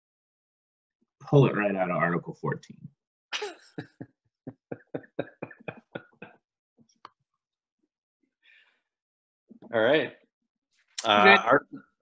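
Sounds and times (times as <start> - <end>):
person laughing: 3.4 - 6.4.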